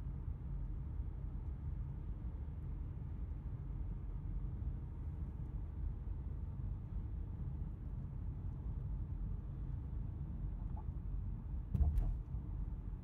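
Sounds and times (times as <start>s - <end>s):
road and engine rumble in car: 0.0s - 13.0s
brief knocks: 11.8s - 12.2s.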